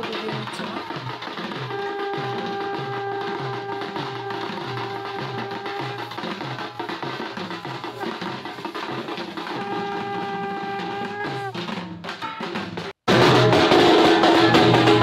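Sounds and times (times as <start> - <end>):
drums playing fast beat: 0.0 - 15.0.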